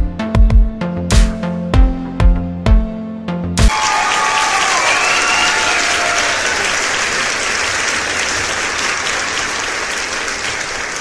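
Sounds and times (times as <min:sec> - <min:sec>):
crowd applauding: 0:03.7 - 0:11.0.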